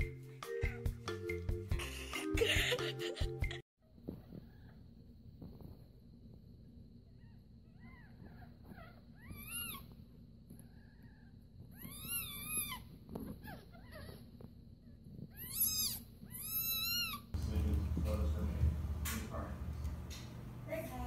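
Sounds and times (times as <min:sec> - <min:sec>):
kittens mewing: 0:07.2 - 0:14.4, 0:15.2 - 0:17.4.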